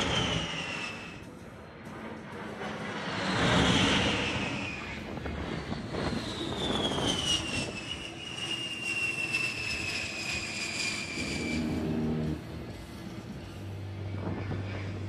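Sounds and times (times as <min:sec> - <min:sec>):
jet flyby rush and whine: 0:00.0 - 0:15.0.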